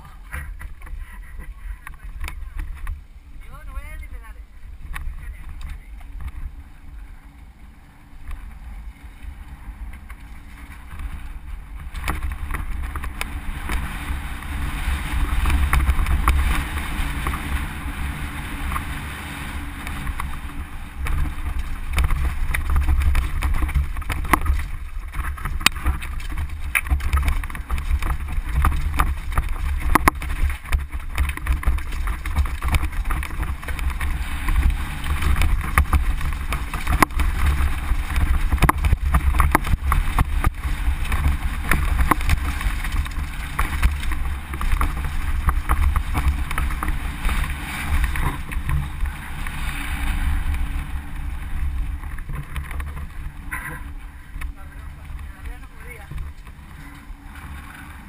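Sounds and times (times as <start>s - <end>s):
bike rattling over rocks: 0.0s - 58.0s
wind buffeting microphone: 0.0s - 58.0s.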